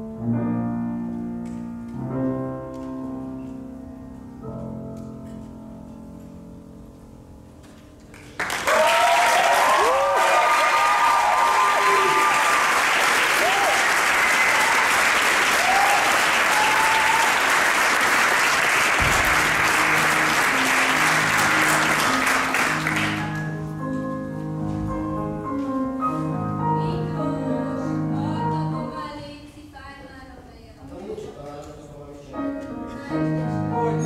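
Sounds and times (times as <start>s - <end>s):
grand piano slow chords: 0.0s - 8.2s, 18.7s - 29.3s, 32.3s - 34.0s
audience applause: 8.1s - 23.5s.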